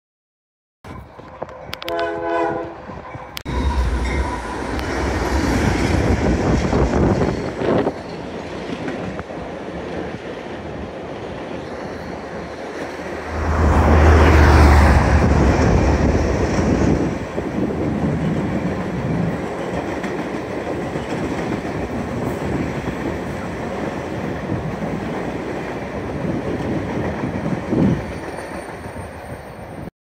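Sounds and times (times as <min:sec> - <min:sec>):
steel wheels rumbling on rail: 0:00.9 - 0:29.9.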